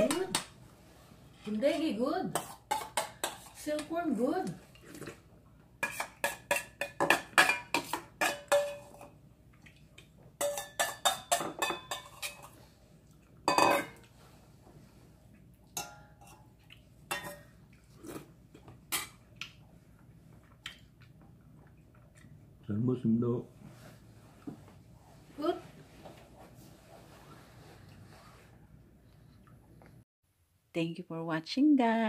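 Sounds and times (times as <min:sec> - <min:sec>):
metal spoon clinking in bowl: 0:10.4 - 0:12.5, 0:15.8 - 0:16.4.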